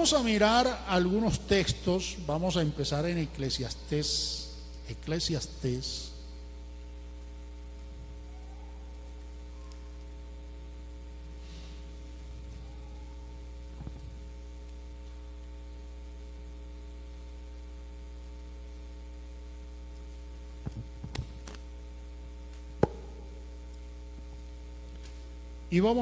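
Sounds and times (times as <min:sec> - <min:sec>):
electrical mains hum: 0:00.0 - 0:26.0
pages turning: 0:20.7 - 0:21.7
microphone handling knocks: 0:22.8 - 0:23.4.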